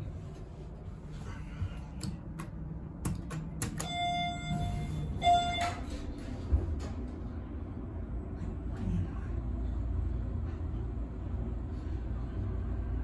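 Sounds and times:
elevator running rumble: 0.0 - 13.0
elevator push button clicks: 3.1 - 4.1
elevator electronic beep: 3.7 - 6.2.

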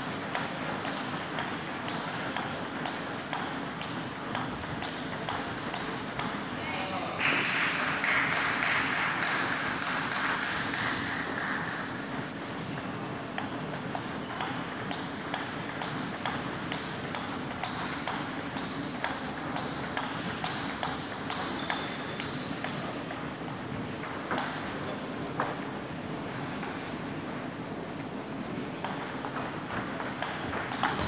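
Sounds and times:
table tennis balls clicking: 0.0 - 6.5, 12.1 - 24.7, 28.8 - 31.0.

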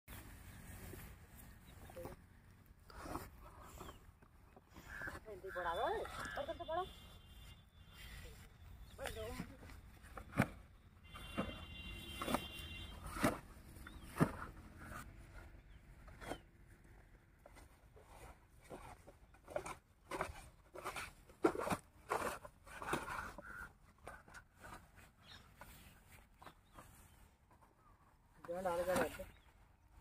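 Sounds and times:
plastic pipe crackling and rustling: 7.4 - 30.0.

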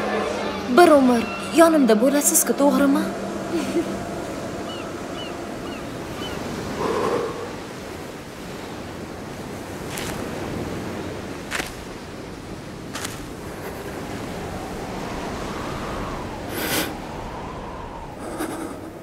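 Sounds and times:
wind: 0.0 - 19.0
waves washing onto pebbles: 8.4 - 15.5.

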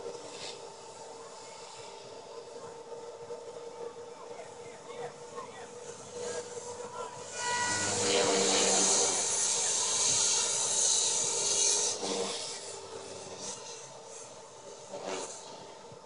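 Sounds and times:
helicopter rotor whoosh: 0.0 - 16.0
electric motor whine: 4.7 - 16.0.

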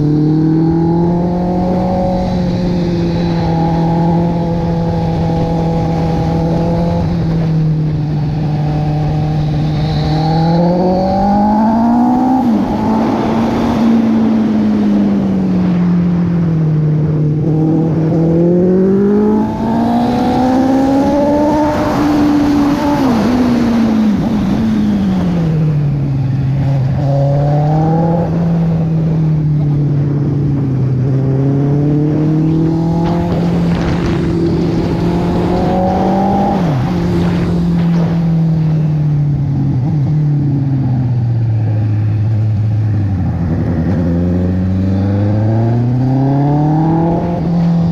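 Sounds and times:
motorcycle engine revving: 0.0 - 47.9
wind rushing: 29.8 - 39.1.

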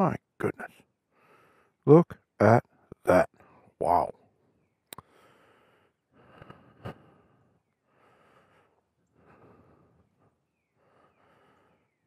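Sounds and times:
man breathing: 1.1 - 1.8, 5.0 - 12.0.

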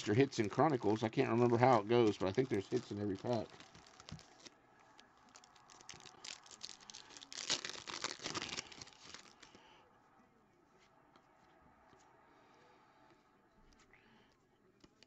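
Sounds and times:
foil wrapper tearing and crinkling: 0.6 - 4.5, 5.2 - 9.6.

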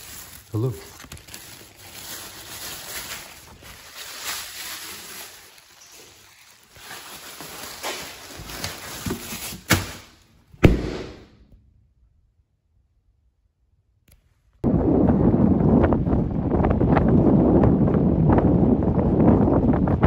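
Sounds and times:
plastic bag crinkling: 0.0 - 10.3
heavy thump: 10.6 - 11.3.

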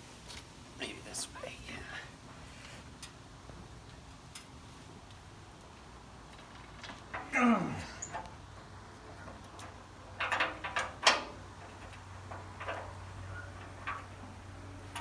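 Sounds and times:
metal tools clinking: 6.8 - 8.3.

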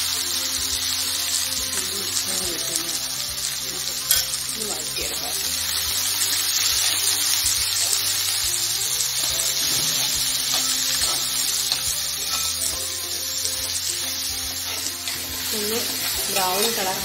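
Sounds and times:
onions sizzling in hot oil: 0.0 - 17.0.

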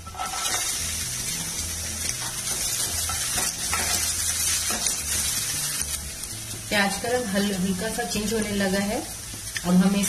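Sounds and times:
spatula scraping pan: 0.0 - 0.8
onion sizzling in hot oil: 0.0 - 10.0.

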